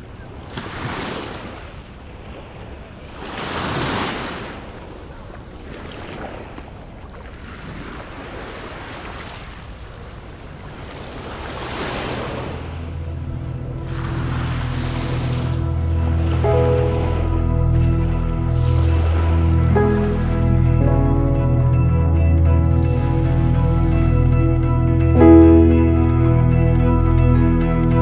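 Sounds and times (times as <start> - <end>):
small waves breaking on beach: 0.0 - 20.4.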